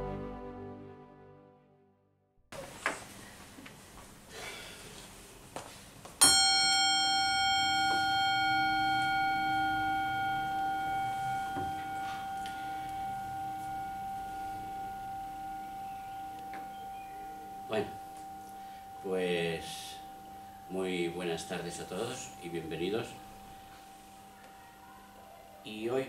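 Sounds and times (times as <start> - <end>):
singing bowl ringing: 6.2 - 25.8.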